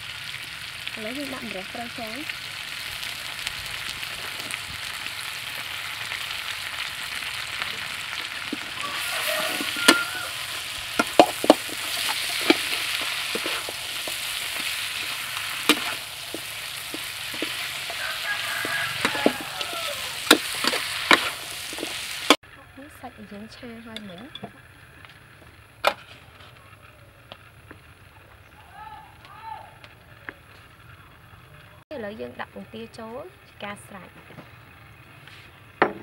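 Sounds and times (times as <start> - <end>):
food sizzling in a frying pan: 0.0 - 26.4
metal spatula striking pan: 11.0 - 18.0, 19.0 - 21.9.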